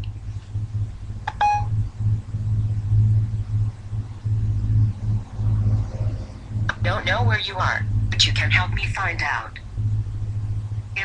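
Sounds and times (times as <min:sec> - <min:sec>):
pulsing low rumbling hum: 0:00.0 - 0:11.0
short electronic beep: 0:01.3 - 0:01.7.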